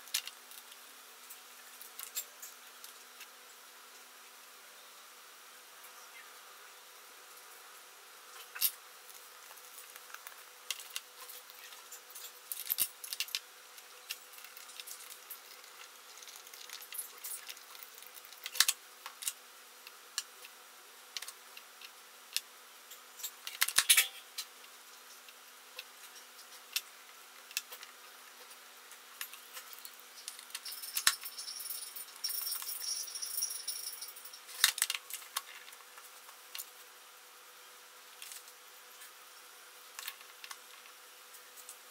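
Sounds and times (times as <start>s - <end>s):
faint steady hum: 0.0s - 41.9s
small metal parts clinking: 8.4s - 20.4s, 22.9s - 24.4s, 29.2s - 36.7s.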